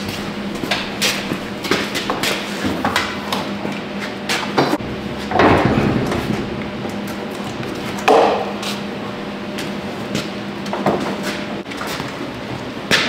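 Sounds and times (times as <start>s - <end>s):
metal knocks and clanks: 4.6s - 8.5s
metal door scraping: 5.1s - 7.1s.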